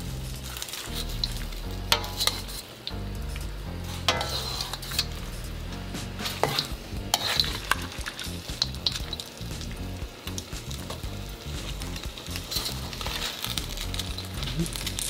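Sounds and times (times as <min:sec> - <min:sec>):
food sizzling in a wok: 0:00.0 - 0:15.0
metal ladle clinking on pan: 0:01.9 - 0:02.5, 0:04.1 - 0:04.8.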